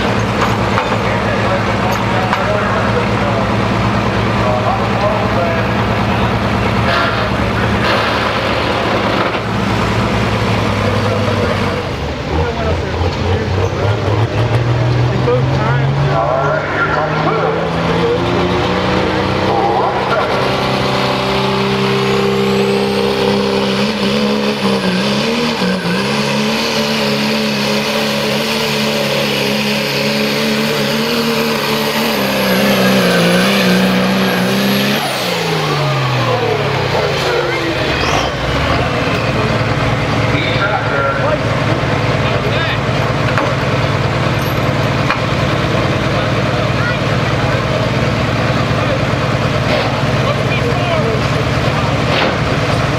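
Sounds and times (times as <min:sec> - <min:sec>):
diesel engine idling: 0:00.0 - 0:26.9, 0:27.6 - 0:52.9
turbocharger whistle: 0:21.8 - 0:36.7, 0:37.3 - 0:39.5.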